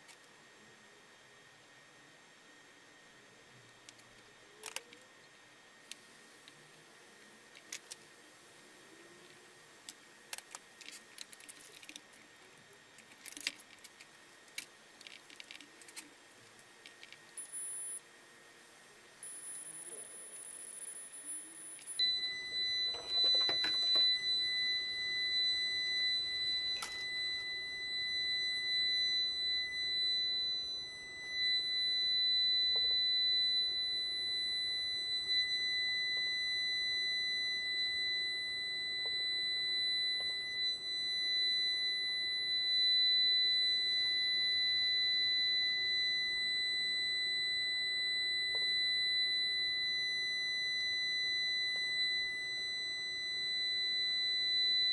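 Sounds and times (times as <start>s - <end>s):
high-pitched electronic buzzer tone: 17.3s - 18.0s, 19.2s - 54.9s.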